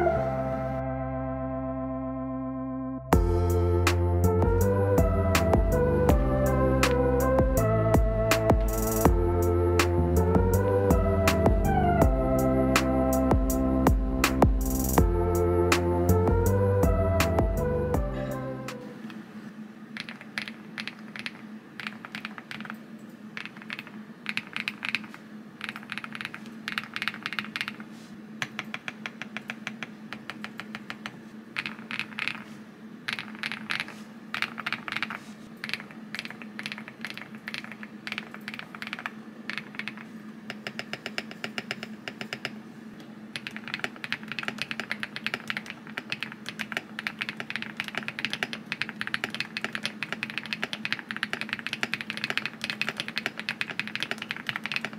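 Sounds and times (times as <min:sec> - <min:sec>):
mechanical keyboard typing: 0:20.0 - 0:22.8, 0:23.4 - 0:32.5, 0:33.1 - 0:42.6, 0:43.3 - 0:54.9.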